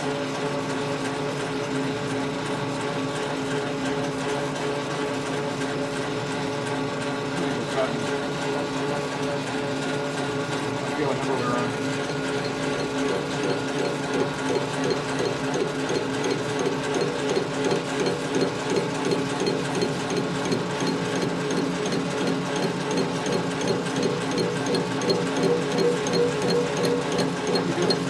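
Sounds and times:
machine tool motor hum: 10.9 - 28.0
light ticking: 12.4 - 28.0.

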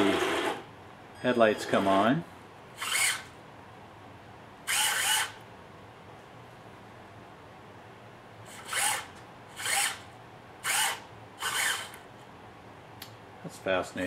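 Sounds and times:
small electric motor whirring: 2.8 - 3.4, 4.7 - 5.4, 8.5 - 12.0.

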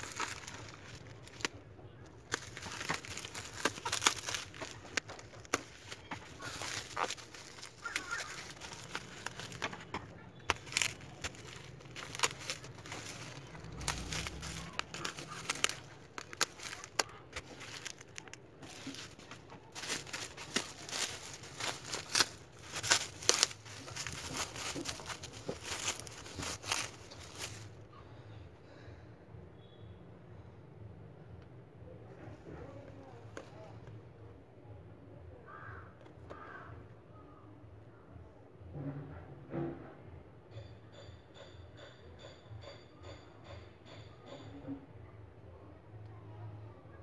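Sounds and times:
bubble wrap crinkling and crackling: 0.0 - 27.8.

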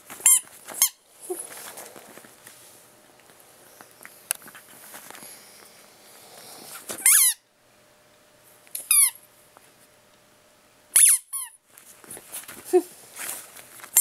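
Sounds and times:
squeaky dog toy squeaking: 0.2 - 1.0, 7.0 - 7.4, 8.8 - 9.2, 10.9 - 11.6.

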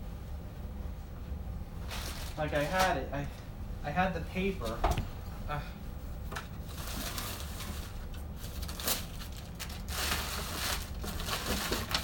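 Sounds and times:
plastic bag and cardboard rustling: 1.8 - 3.3, 6.4 - 12.0.

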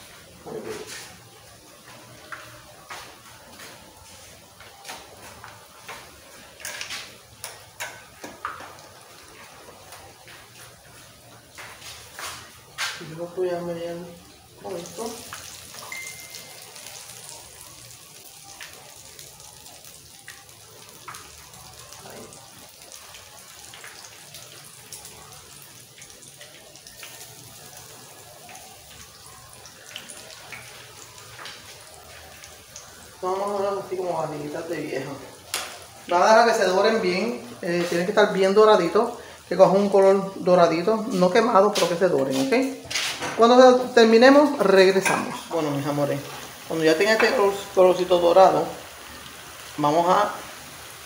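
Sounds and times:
oil sizzling with pops: 0.0 - 51.0.

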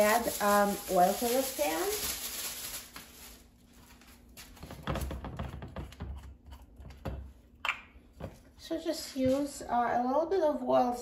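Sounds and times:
plastic glove rustling: 0.0 - 5.7.

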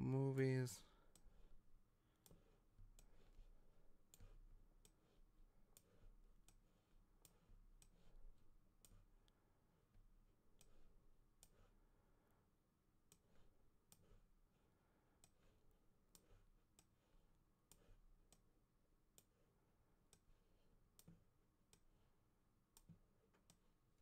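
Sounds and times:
computer mouse clicks: 2.2 - 9.4, 10.6 - 11.8, 13.0 - 14.3, 15.2 - 17.0, 17.6 - 18.5, 19.1 - 19.4, 20.1 - 22.0, 22.7 - 24.0.

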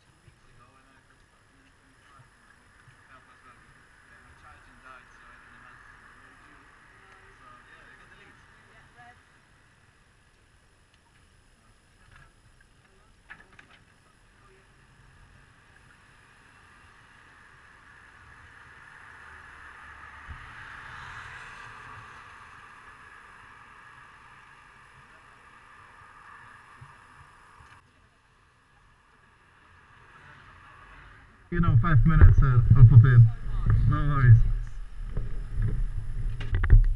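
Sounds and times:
faint clicks: 10.2 - 11.3
vehicle passing on wet street: 16.8 - 26.7, 29.3 - 31.4
low rumble: 31.5 - 36.9.

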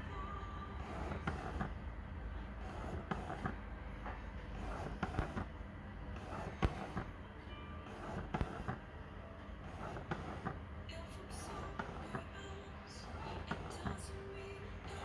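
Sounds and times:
lens focus motor whirring: 0.8 - 1.8, 6.2 - 7.1, 7.9 - 8.8.

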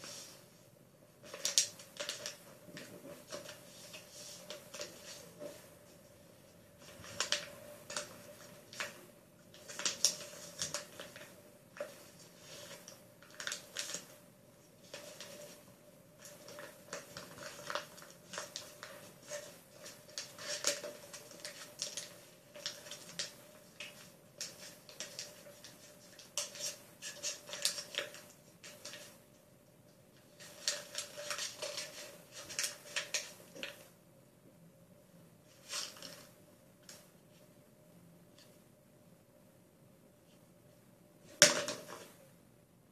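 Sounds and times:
faint steady hum: 0.0 - 42.9
paper rustling and crinkling: 1.2 - 6.0, 6.8 - 14.2, 14.8 - 29.2, 30.2 - 33.9, 35.5 - 37.4.

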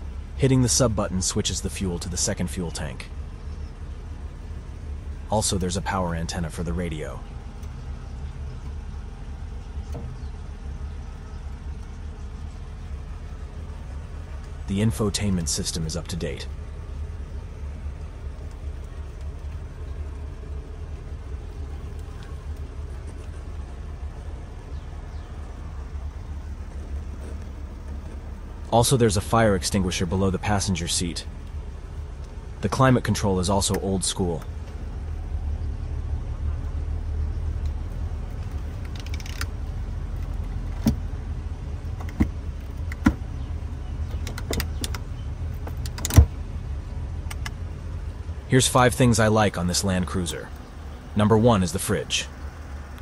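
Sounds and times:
engine idling rumble: 0.0 - 53.0
low hum in vehicle cab: 0.0 - 53.0.

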